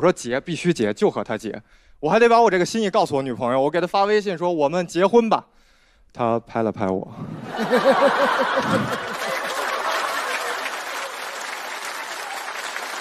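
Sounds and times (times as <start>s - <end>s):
audience laughing: 7.4s - 11.5s
audience clapping: 7.7s - 13.0s.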